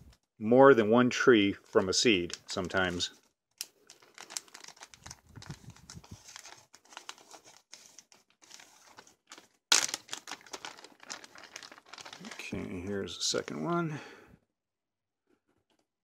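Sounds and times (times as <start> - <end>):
plastic bag crinkling: 2.8 - 12.8.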